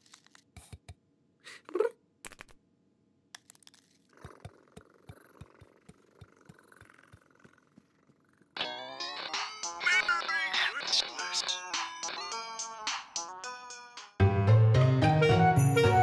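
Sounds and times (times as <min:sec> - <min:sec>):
soft regular ticks: 0:03.4 - 0:08.6
person imitating cat call: 0:09.8 - 0:12.0.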